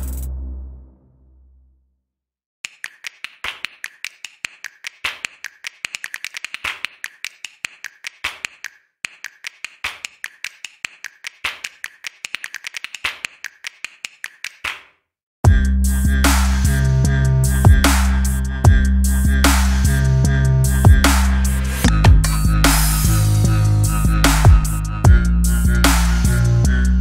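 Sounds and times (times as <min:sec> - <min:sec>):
loud electronic music: 0:00.0 - 0:00.9, 0:15.5 - 0:27.0.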